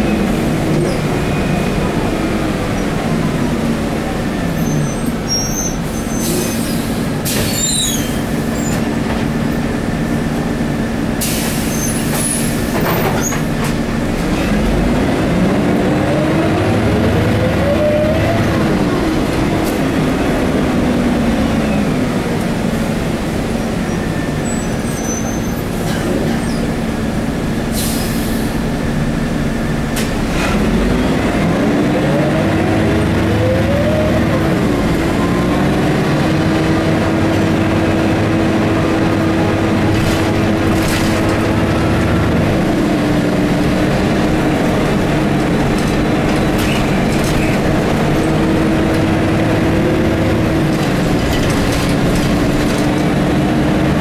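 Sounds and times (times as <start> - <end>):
bus engine droning: 0.0 - 54.0
rattling clicks from bus body: 6.2 - 9.6, 11.2 - 14.6, 25.0 - 26.8, 29.9 - 30.7, 39.1 - 49.2, 50.2 - 53.5.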